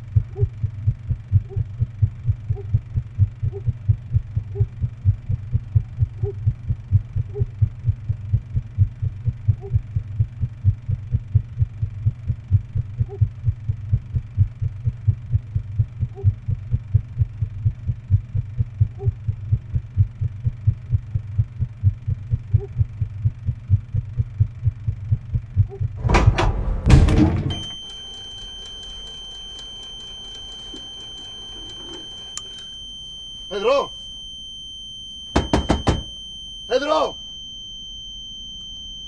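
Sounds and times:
low heartbeat-like thumping: 0.0s - 27.2s
steady high-pitched tone: 27.1s - 39.0s.

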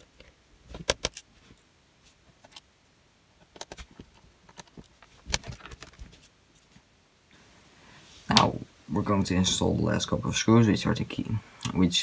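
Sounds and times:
clicks of plastic case parts: 0.0s - 1.3s, 3.4s - 6.0s.

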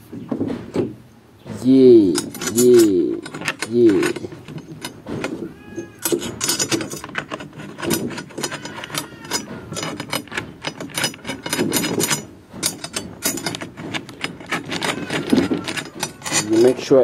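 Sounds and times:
small metal clicks and rattles: 2.1s - 17.0s.

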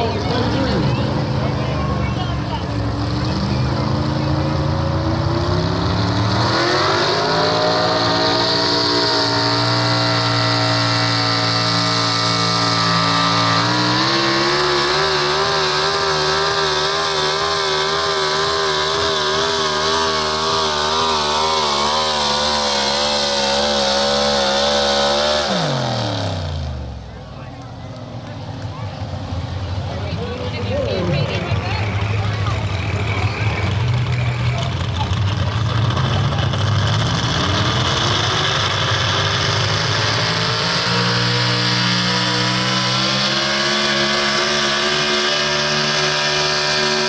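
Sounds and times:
truck engine at full throttle: 0.0s - 47.0s.

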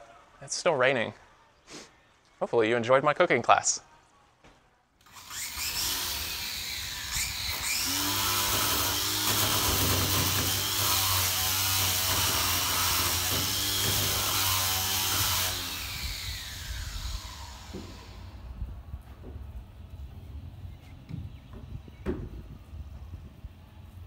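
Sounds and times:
handheld power tool running: 5.0s - 18.4s.

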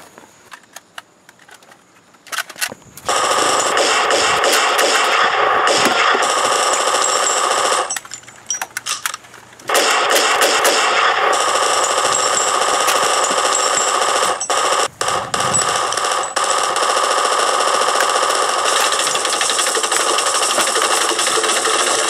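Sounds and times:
automatic machine-gun fire: 3.1s - 8.0s, 9.7s - 22.0s.

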